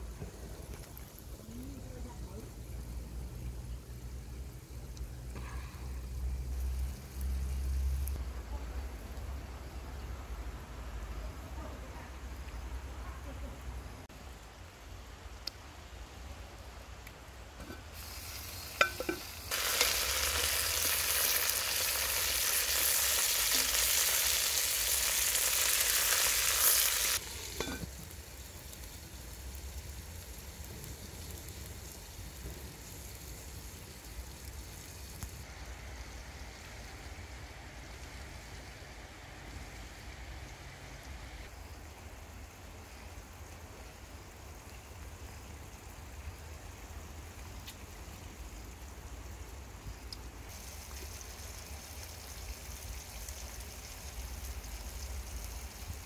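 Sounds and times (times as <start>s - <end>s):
food sizzling in hot oil: 5.9s - 8.2s, 17.5s - 38.6s, 48.3s - 56.0s.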